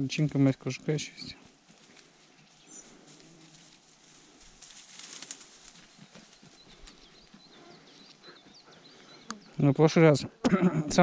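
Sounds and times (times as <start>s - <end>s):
soft rustling hiss: 0.0s - 8.1s
faint bird calls: 1.8s - 9.8s.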